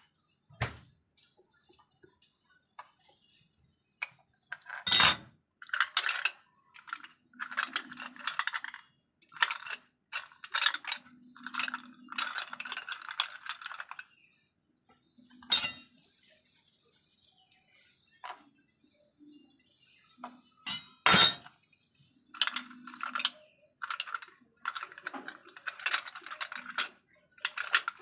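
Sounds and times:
knife scraping and clinking shells: 4.6 - 6.3, 15.4 - 16.0.

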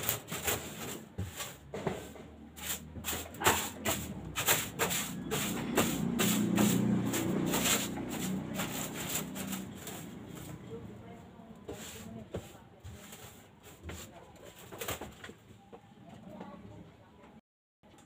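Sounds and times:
rubbing and scraping strokes: 0.0 - 10.7, 11.6 - 14.6.

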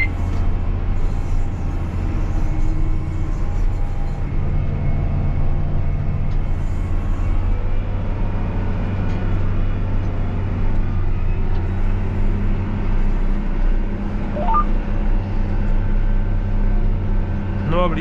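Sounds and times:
quick electronic beeps: 14.4 - 14.7.

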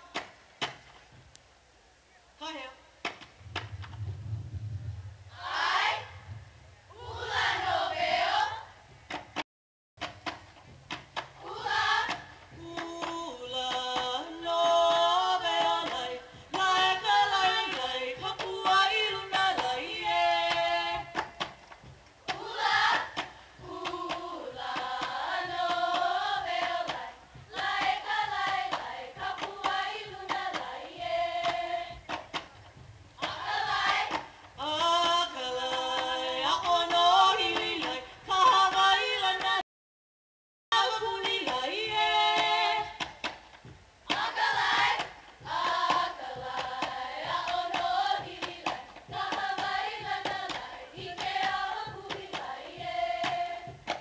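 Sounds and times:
voices chanting: 5.3 - 6.2, 6.9 - 8.7, 11.4 - 21.3, 22.3 - 32.3, 44.1 - 53.9.

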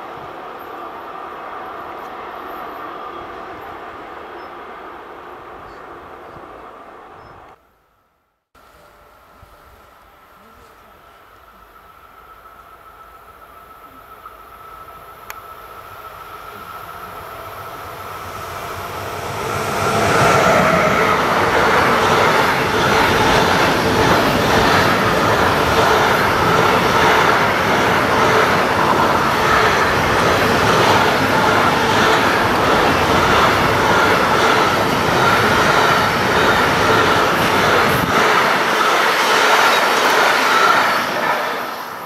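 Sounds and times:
freight train passing: 0.0 - 7.6, 8.7 - 42.0
steady high tone: 15.9 - 32.3.

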